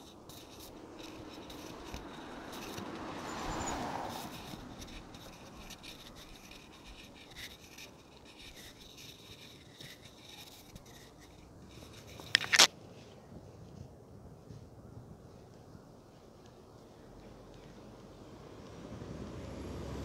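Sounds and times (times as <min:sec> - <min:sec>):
phone microphone handling noise: 0:11.7 - 0:12.7.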